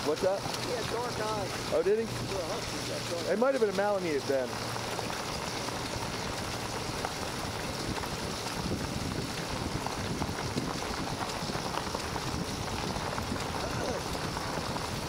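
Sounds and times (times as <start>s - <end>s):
dog paws running on gravel: 0.0s - 15.0s
wheels crunching on gravel: 0.0s - 15.0s
wind on microphone: 6.2s - 15.0s.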